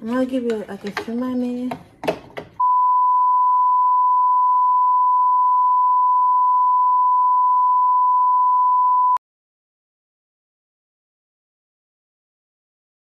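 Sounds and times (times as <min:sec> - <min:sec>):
electronic test tone beep: 0:02.6 - 0:09.2.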